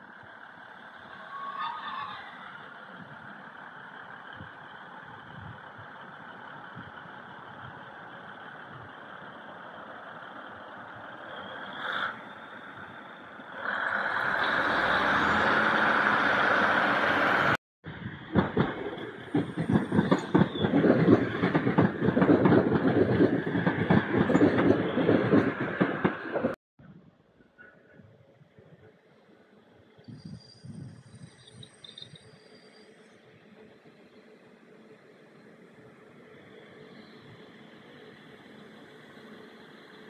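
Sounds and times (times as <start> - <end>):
train rushing past: 13.6 - 26.6
train wheels clattering over rail joints: 18.1 - 26.6.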